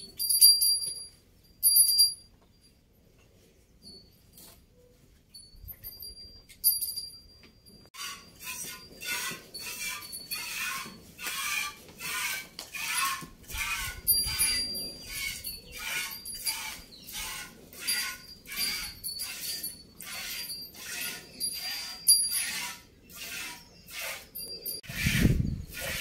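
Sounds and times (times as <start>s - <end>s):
small bell tinkling: 0.0s - 3.1s, 3.7s - 8.0s, 14.1s - 17.0s, 24.4s - 24.8s.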